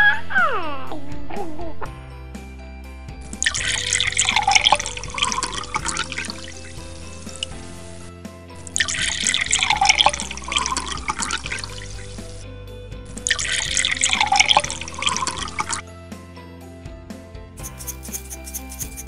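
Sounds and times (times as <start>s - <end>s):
background music: 0.0s - 19.0s
water pouring into cup: 3.4s - 7.8s, 8.6s - 12.4s, 13.2s - 15.8s.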